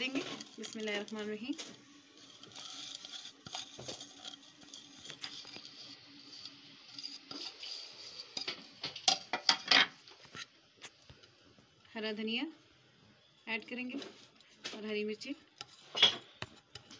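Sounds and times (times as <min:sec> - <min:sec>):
scratchy rustling of spices: 0:00.0 - 0:08.9, 0:13.8 - 0:16.9.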